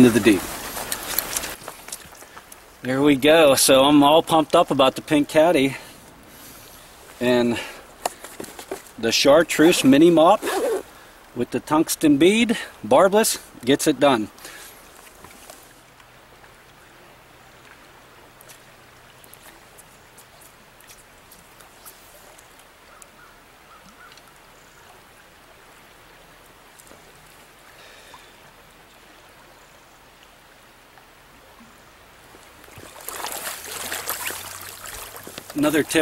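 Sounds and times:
stream water flowing: 0.0 - 36.0.

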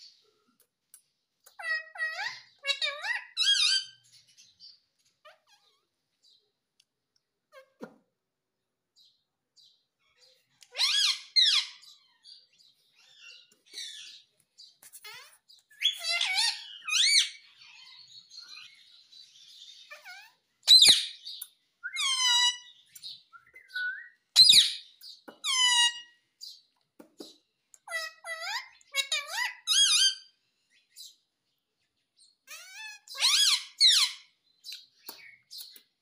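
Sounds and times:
parakeet squawking and chirping: 1.5 - 6.0, 10.0 - 26.6, 27.8 - 30.4, 32.2 - 35.8.

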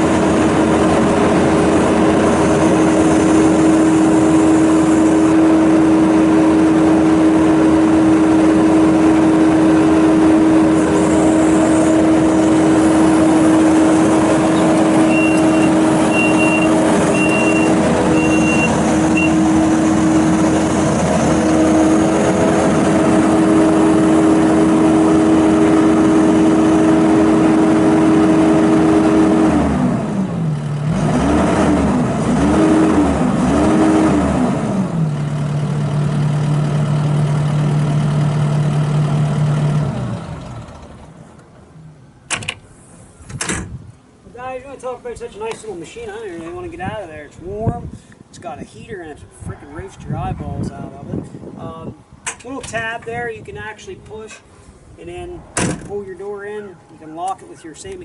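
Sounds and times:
diesel engine running at high throttle: 0.0 - 41.9
short high beeps: 14.6 - 19.4.

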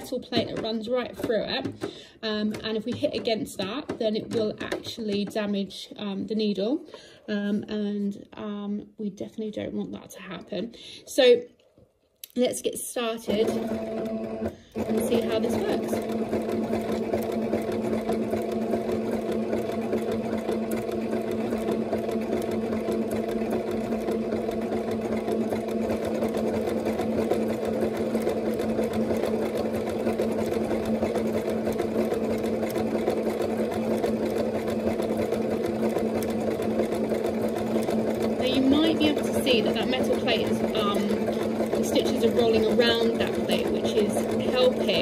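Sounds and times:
sewing machine motor hum: 0.0 - 7.6, 13.0 - 45.0
needle ticking: 14.8 - 45.0.

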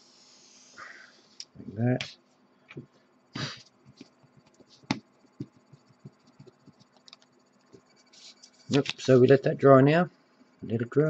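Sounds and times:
breathy puff: 3.3 - 3.7.

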